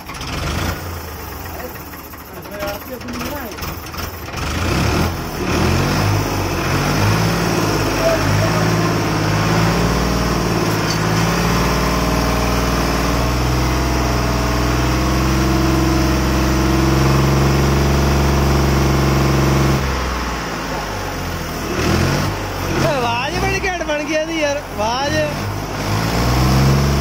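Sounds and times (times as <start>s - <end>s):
tractor engine idling: 0.0s - 26.3s.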